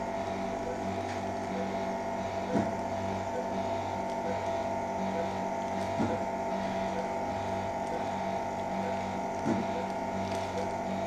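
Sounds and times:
electrical equipment hum: 0.0 - 11.0
pulsing low drone: 0.0 - 11.0.

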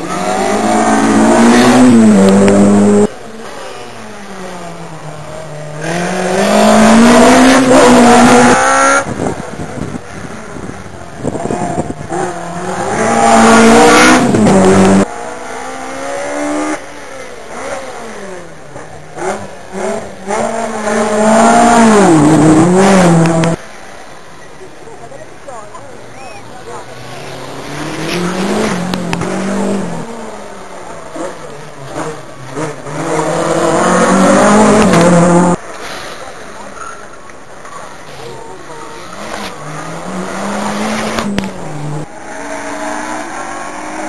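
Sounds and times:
rally cars racing past: 0.0 - 23.8, 26.8 - 37.0, 37.7 - 44.0.

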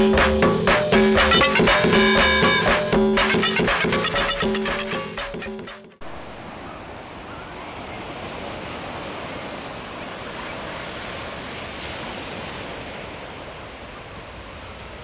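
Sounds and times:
waves breaking on beach: 6.4 - 15.0.

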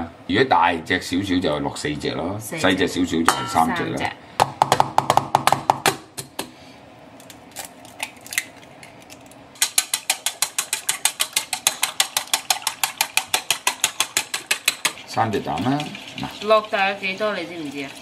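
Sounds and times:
eggs cracked on plate: 7.2 - 15.1
chopsticks beating eggs: 9.6 - 17.0.

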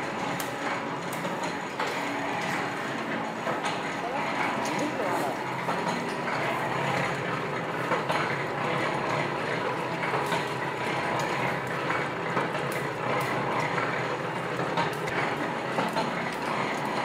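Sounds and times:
oil expeller machine rumble: 0.0 - 17.0.

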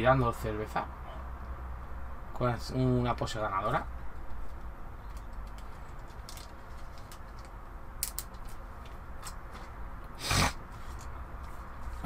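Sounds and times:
handling clicks and rustles: 3.6 - 9.8.

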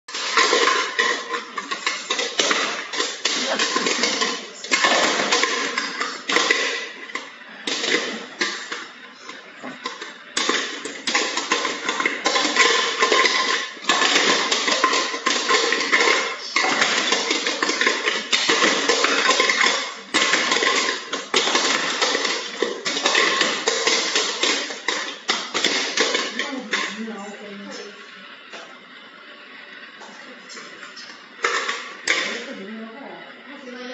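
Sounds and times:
metal spoon scraping a metal pot: 0.1 - 8.8, 9.8 - 27.0.

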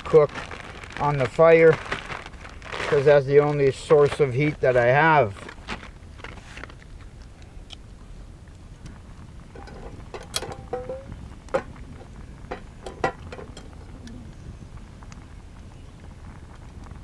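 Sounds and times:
metal cookware knocks and clicks: 9.6 - 11.7, 12.5 - 13.7.

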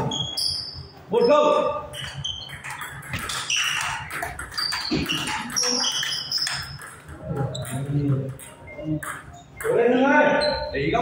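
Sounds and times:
shoes squeaking on tiled floor: 0.0 - 11.0
table tennis ball clicks: 2.0 - 9.3.

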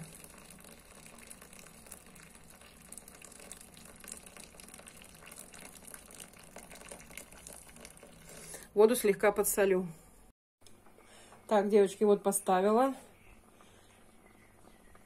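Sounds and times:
water trickling into a pan: 0.0 - 8.7.

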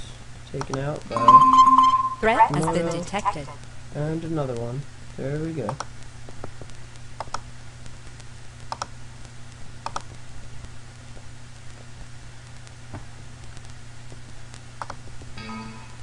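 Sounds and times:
steady low hum: 0.0 - 16.0
computer mouse clicks: 0.6 - 0.8, 5.7 - 5.9, 7.2 - 7.4, 8.7 - 8.9, 9.8 - 10.1, 14.8 - 15.0.

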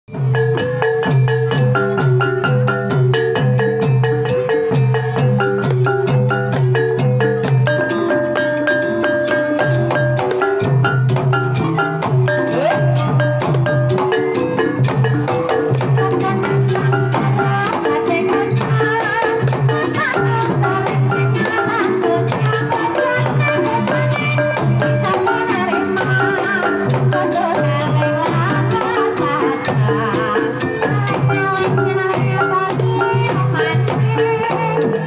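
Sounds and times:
hand drum pattern: 0.1 - 35.0
mallet-struck gamelan melody: 0.1 - 35.0
person singing wavering: 12.2 - 35.0.

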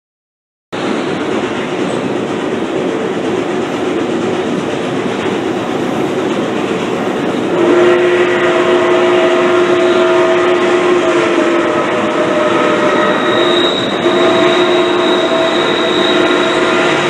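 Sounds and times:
train rolling along track: 0.7 - 17.0
steam locomotive whistle: 7.5 - 17.0.

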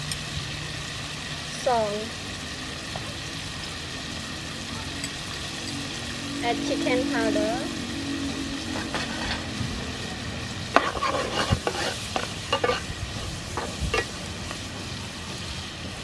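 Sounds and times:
clams sizzling in oil: 0.0 - 16.0
metal spatula scraping pan: 8.7 - 9.6, 10.7 - 14.2.

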